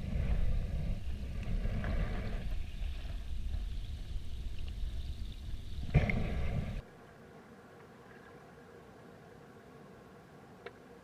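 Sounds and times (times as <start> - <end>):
underwater water rumble: 0.0 - 6.8.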